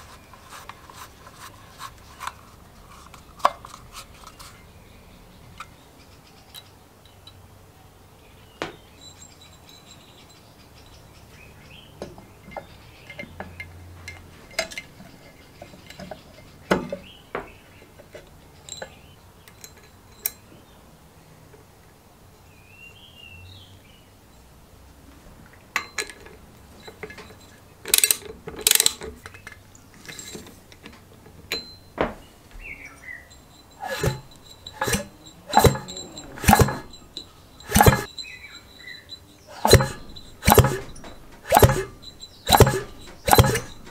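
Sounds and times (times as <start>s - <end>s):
metal engine parts clinking: 9.0s - 11.0s, 12.4s - 17.2s, 17.9s - 20.5s, 25.8s - 43.9s.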